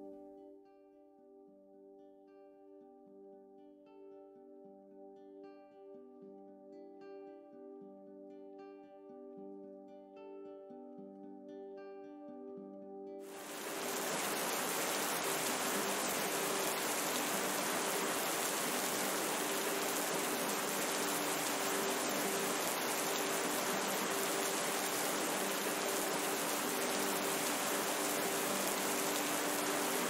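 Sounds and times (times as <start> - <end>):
steady rain hiss: 13.3 - 30.0.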